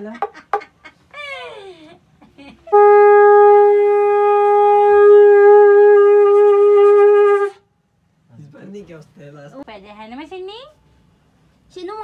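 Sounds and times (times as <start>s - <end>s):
conch shell blown in a long note: 2.7s - 7.7s.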